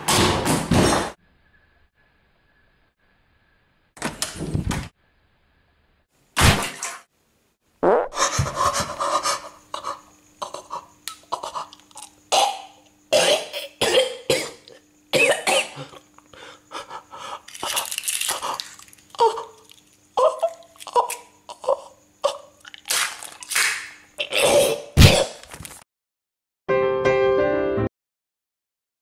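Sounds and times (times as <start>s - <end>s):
breathy cough-like noises: 9.8s - 11.8s, 12.4s - 16.1s
wet squelches and splats of eggs: 22.6s - 24.0s.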